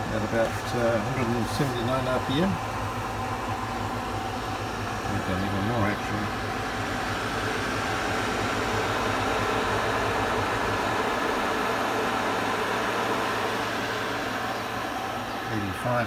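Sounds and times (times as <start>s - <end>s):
lathe motor humming: 0.0s - 16.0s.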